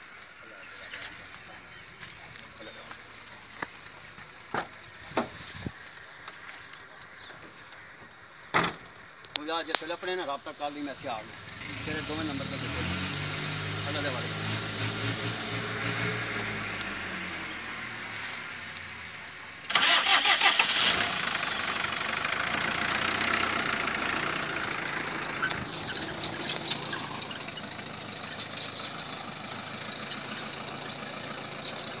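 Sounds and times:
pickup truck engine running: 16.4 - 32.0.

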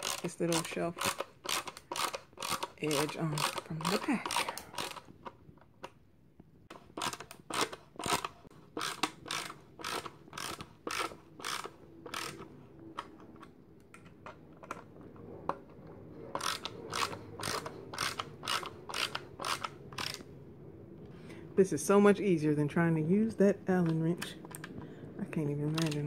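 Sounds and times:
screwdriver ratchet clicks: 0.0 - 5.1, 7.0 - 13.1, 16.4 - 20.2, 25.7 - 26.0.

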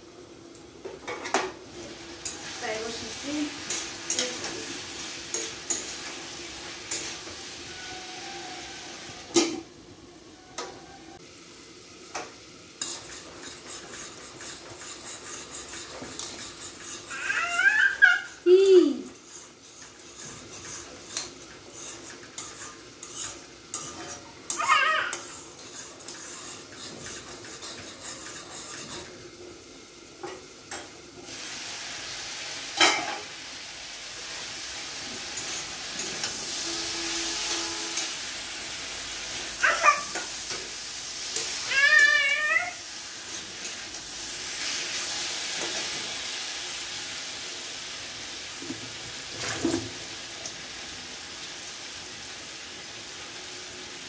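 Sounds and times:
food sizzling in hot oil: 0.0 - 54.0
high-pitched cries: 17.1 - 19.0, 24.5 - 25.3, 39.6 - 40.2, 41.6 - 42.8.

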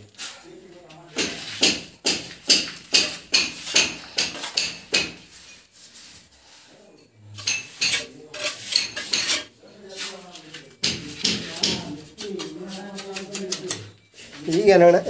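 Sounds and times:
tools knocking on bricks: 1.2 - 5.3, 10.8 - 12.0
trowel scraping wet mortar: 7.4 - 15.0.

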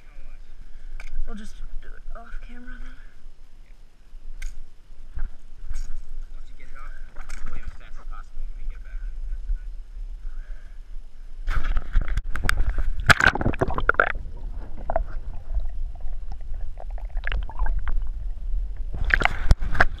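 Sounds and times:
muffled underwater rumble: 5.0 - 20.0
water splashing and gurgling: 12.3 - 20.0.

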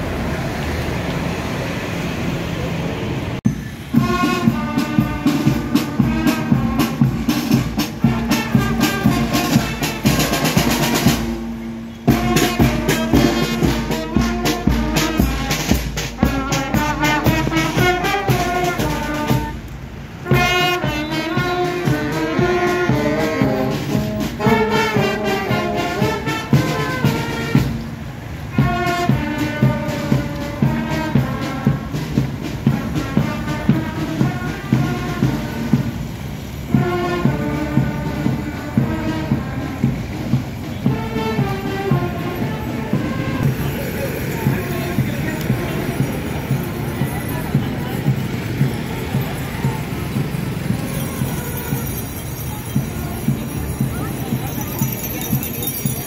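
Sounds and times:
marching band playing: 3.4 - 56.0.

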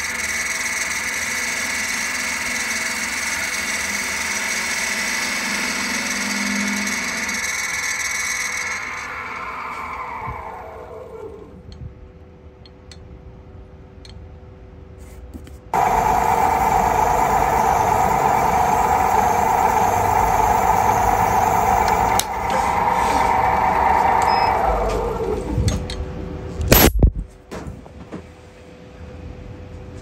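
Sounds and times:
drill bit boring into wood: 0.0 - 10.8, 15.8 - 25.5
lathe motor hum: 0.1 - 11.5, 15.8 - 25.7.

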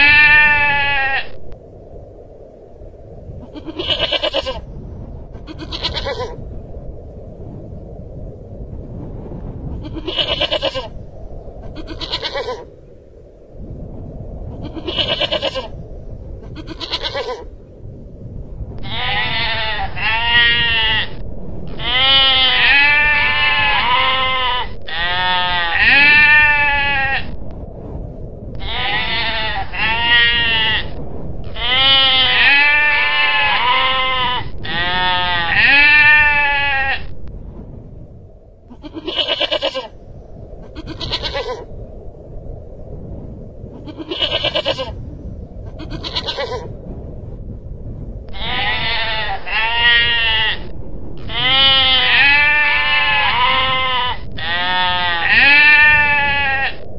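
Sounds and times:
goral wavering bleats: 5.5 - 6.4, 11.8 - 12.6, 21.8 - 27.3, 31.6 - 37.1, 38.7 - 39.9, 48.4 - 50.7, 51.3 - 56.8.

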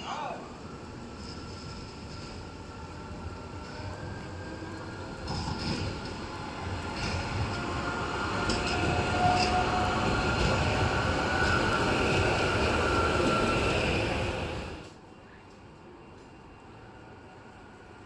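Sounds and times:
faint tram whine: 0.4 - 18.0
tram wheels rumbling on rails: 0.4 - 18.0.

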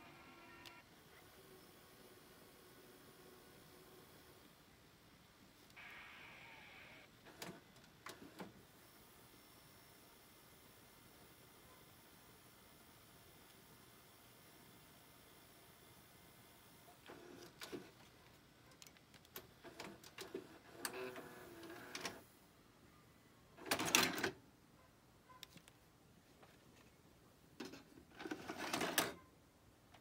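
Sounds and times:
tape mechanism whirring and clicking: 0.0 - 1.6, 7.1 - 8.6, 16.9 - 22.2, 27.6 - 29.2.

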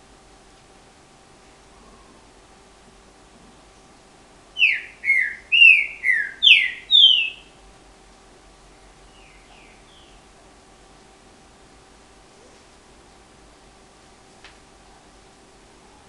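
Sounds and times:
bird singing whistled phrase: 4.6 - 7.5.

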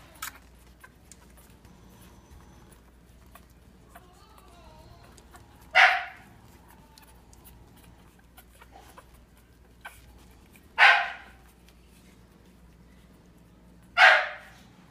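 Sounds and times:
dog barking: 5.7 - 6.4, 10.8 - 11.4, 14.0 - 14.6.

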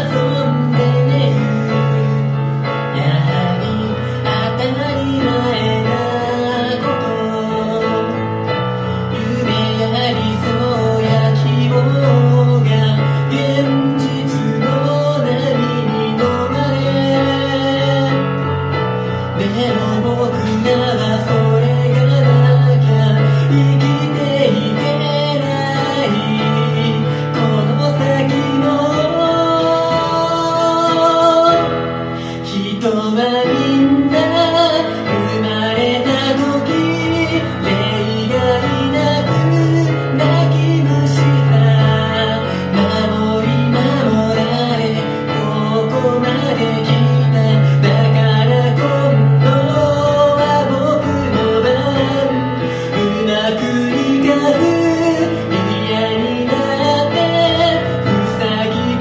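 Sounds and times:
digital piano chords: 0.0 - 59.0
man singing: 0.0 - 59.0.

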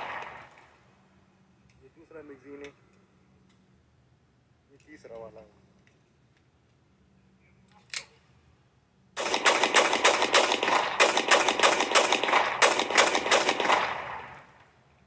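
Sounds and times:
rapid pistol shots: 0.0 - 0.5, 9.2 - 14.6.

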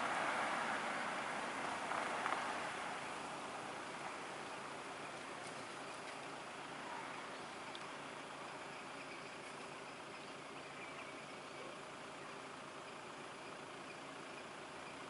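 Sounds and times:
car engines idling: 0.0 - 15.0.

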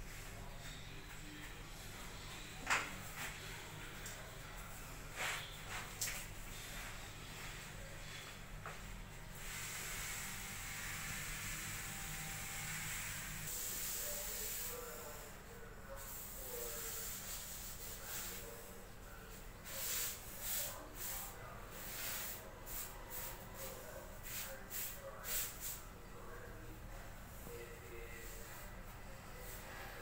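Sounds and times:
steady hiss: 9.4 - 15.4.

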